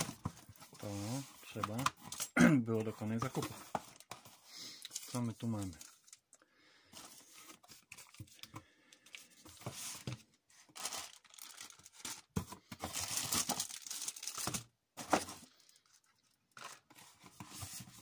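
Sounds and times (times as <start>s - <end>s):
plastic packaging crinkling: 10.7s - 14.7s.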